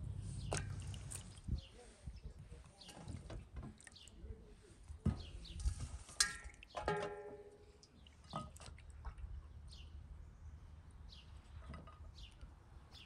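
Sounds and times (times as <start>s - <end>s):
metallic clanks: 6.2s - 7.5s.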